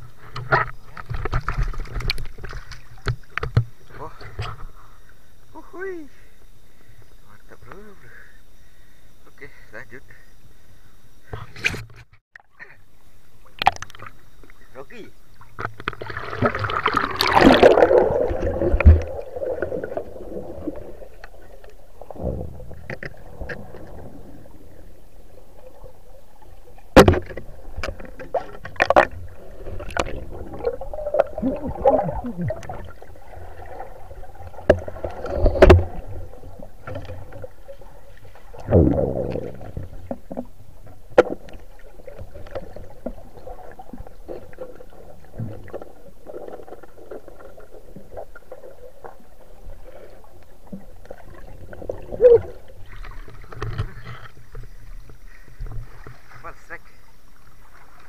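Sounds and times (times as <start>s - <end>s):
water rushing and gurgling: 15.5s - 58.0s
muffled underwater noise: 27.4s - 40.2s.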